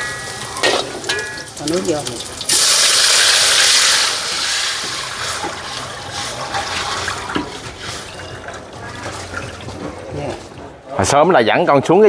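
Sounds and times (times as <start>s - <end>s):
water hissing in a hot wok: 0.0s - 8.2s
water splashing pour: 0.0s - 9.8s.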